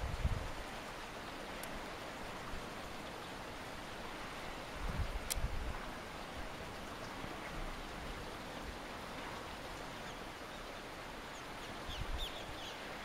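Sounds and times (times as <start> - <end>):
sea: 0.0 - 13.0
wind: 0.0 - 13.0.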